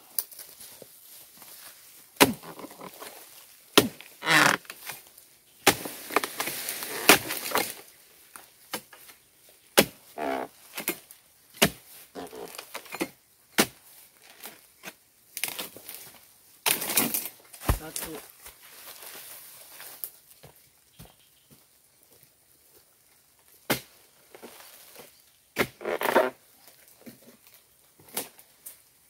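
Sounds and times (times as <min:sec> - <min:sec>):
fronds rustling: 0:00.0 - 0:29.0
chisel chopping palm fronds: 0:02.2 - 0:02.9, 0:03.7 - 0:05.0, 0:05.6 - 0:07.8, 0:09.8 - 0:10.0, 0:10.7 - 0:15.8, 0:16.6 - 0:18.3, 0:23.7 - 0:24.0, 0:25.6 - 0:26.3.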